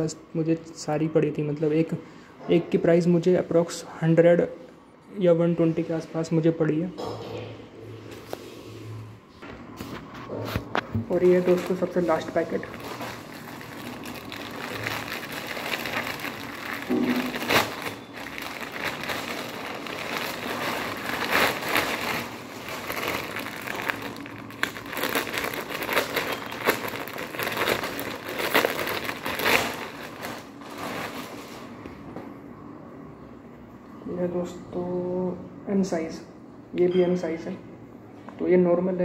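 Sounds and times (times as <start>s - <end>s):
plastic packaging crinkling: 10.5s - 31.9s.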